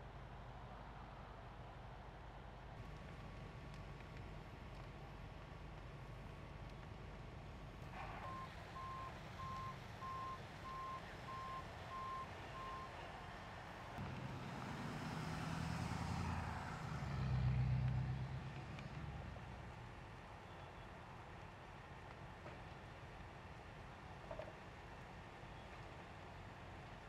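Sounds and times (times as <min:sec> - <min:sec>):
truck reversing alarm beeps: 0:08.2 - 0:13.0.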